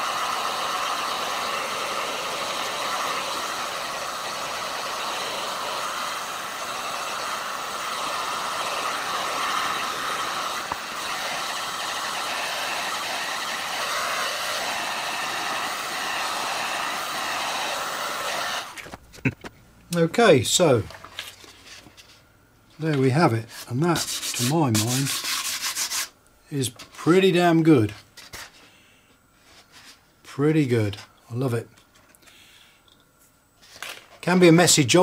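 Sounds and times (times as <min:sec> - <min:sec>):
heat gun blowing air: 0:00.0 - 0:18.9.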